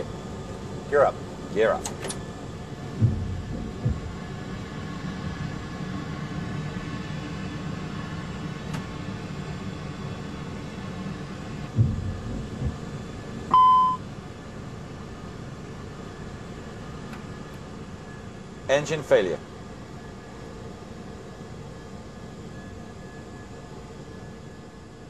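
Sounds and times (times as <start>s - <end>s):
airplane rumble climbing: 0.0s - 25.0s
dull thump: 3.0s - 4.2s, 11.8s - 12.9s
electronic cockpit beep: 13.5s - 14.0s.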